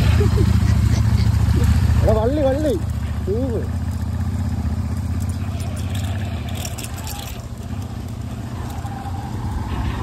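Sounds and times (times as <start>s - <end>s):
motorcycle engine at low revs: 0.0s - 10.0s
clicks and rattles: 5.0s - 9.0s.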